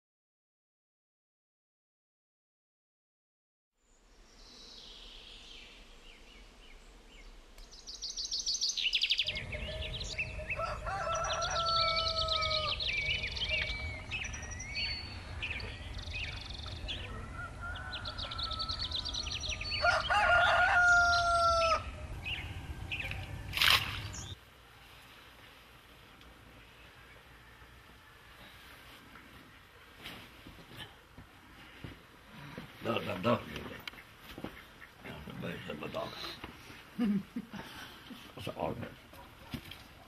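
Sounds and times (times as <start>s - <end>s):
songbirds chirping: 3.8s - 40.0s
rooster crowing: 9.3s - 13.4s, 16.8s - 23.6s, 26.9s - 28.7s
steady low rumble: 21.8s - 24.4s.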